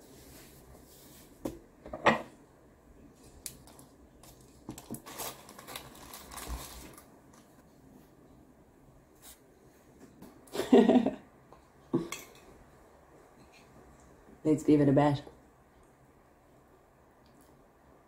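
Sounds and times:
foil crinkling: 0:03.4 - 0:07.5.

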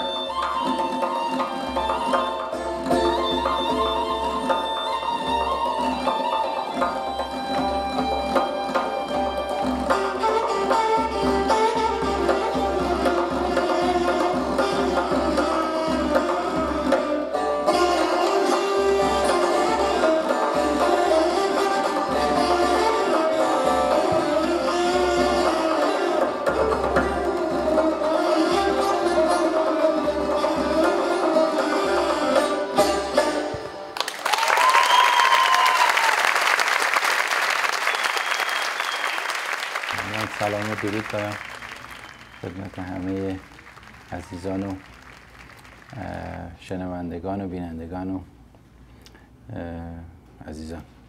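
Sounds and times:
held flute line: 0:00.0 - 0:33.7, 0:40.0 - 0:43.4
hand drum strokes: 0:00.0 - 0:33.8
plucked lute notes: 0:00.0 - 0:34.0
audience applause: 0:34.0 - 0:46.5.

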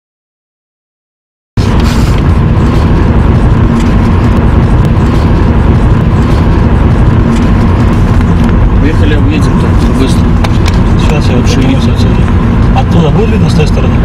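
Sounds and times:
outdoor rumble and hiss: 0:01.6 - 0:14.0.

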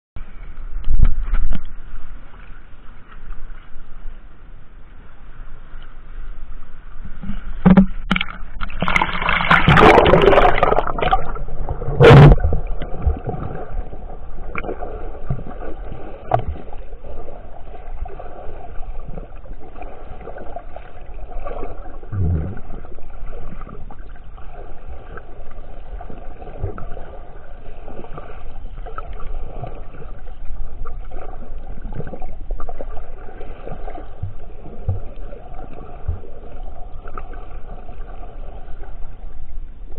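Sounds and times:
muffled underwater swimming: 0:00.2 - 0:39.9
water splashing and rushing: 0:07.1 - 0:39.9
low thump: 0:07.6 - 0:08.2.

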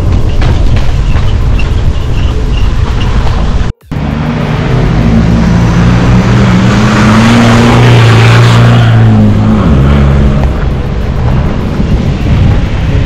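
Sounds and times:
engine at high revs: 0:03.8 - 0:12.9.

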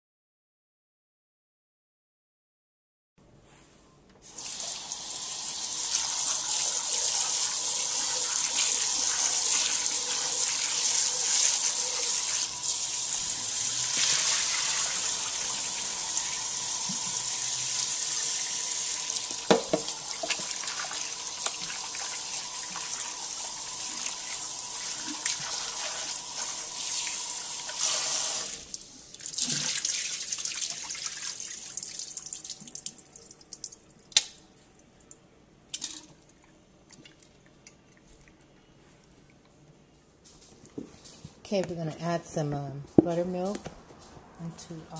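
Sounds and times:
tap water running into a sink: 0:04.3 - 0:34.3.

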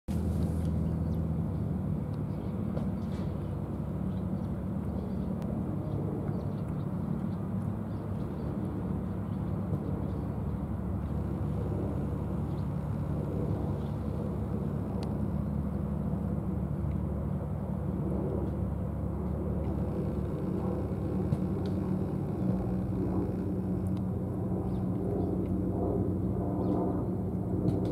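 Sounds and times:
distant road traffic rumble: 0:00.1 - 0:27.9
faint clicks: 0:14.9 - 0:15.2, 0:19.3 - 0:24.1.

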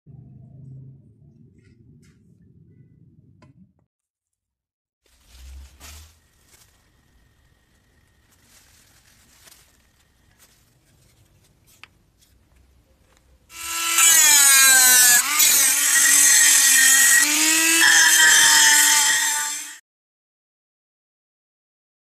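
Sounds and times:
handling rustles: 0:05.0 - 0:07.2, 0:08.2 - 0:13.2
rotary tool grinding whine: 0:13.5 - 0:19.8.

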